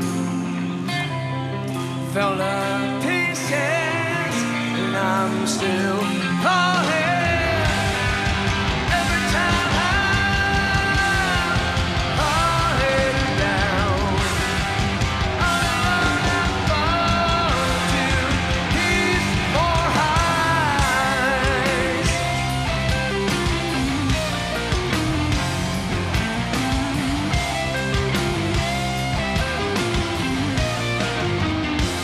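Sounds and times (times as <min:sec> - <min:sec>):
bass and drums: 0:00.0 - 0:32.0
electric guitar: 0:00.0 - 0:32.0
person singing: 0:02.0 - 0:25.0.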